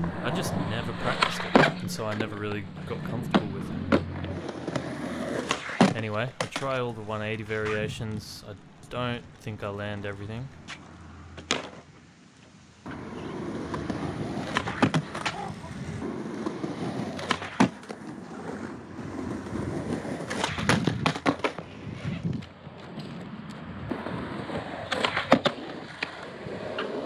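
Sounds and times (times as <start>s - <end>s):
skateboard wheels rolling on concrete: 0.0s - 27.0s
skateboard clacks: 1.0s - 6.8s, 12.9s - 27.0s.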